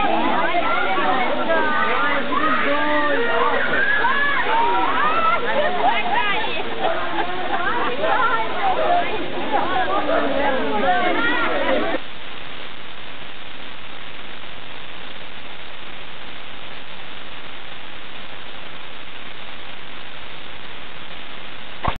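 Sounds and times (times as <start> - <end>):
faint hum: 0.0 - 22.0
static hiss: 0.0 - 22.0.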